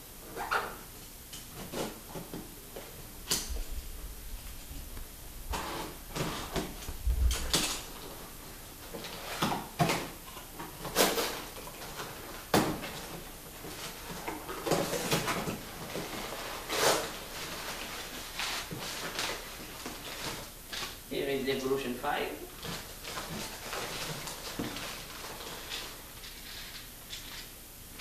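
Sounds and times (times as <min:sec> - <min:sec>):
packing paper rustling: 0:01.5 - 0:28.0
box cutter slitting tape: 0:16.7 - 0:17.1.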